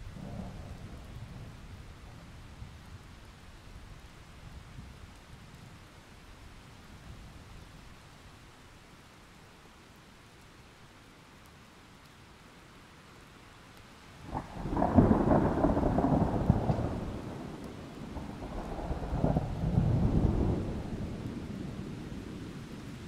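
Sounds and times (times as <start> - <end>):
thunder crack and rumble: 0.0 - 2.7, 14.2 - 22.9
low steady hiss: 0.0 - 23.0.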